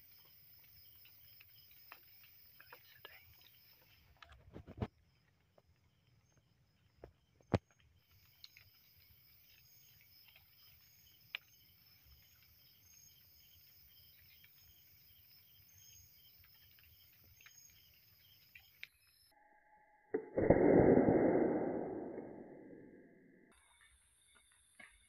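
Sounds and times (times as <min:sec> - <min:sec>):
crickets chirring: 0:00.0 - 0:19.7
soft ticks: 0:11.2 - 0:11.6
sharp click: 0:20.2 - 0:22.6.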